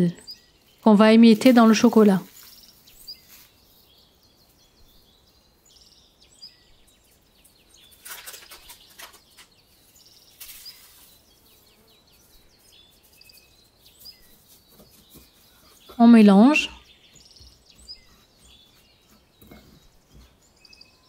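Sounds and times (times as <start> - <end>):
faint bird chirps: 0.0 - 21.0
dry crackling of crumbled wafers: 7.8 - 9.5.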